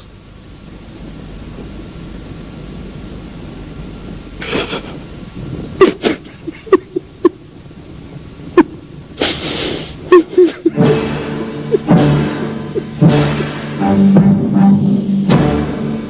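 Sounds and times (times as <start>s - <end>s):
man sobbing: 4.4s - 5.1s, 5.8s - 7.4s, 8.5s - 13.0s.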